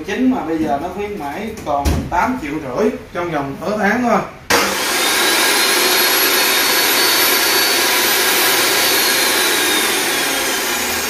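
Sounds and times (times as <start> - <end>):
metal cutting saw motor whine: 4.5 - 11.0.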